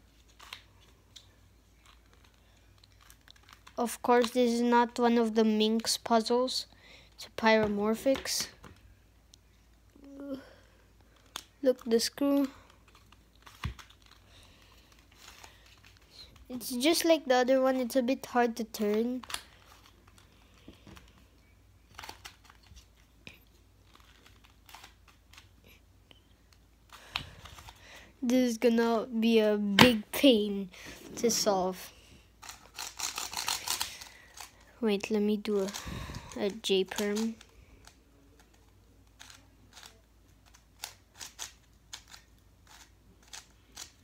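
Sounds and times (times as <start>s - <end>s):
plastic puzzle clicking: 36.5s - 44.0s.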